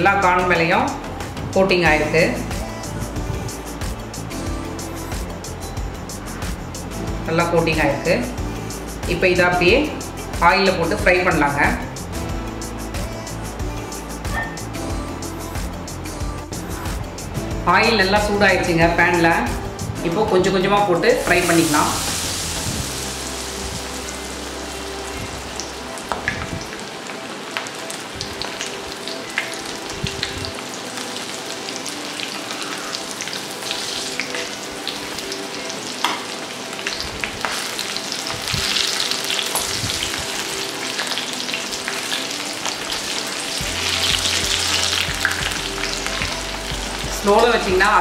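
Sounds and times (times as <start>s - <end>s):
food deep-frying in oil: 21.1s - 48.0s.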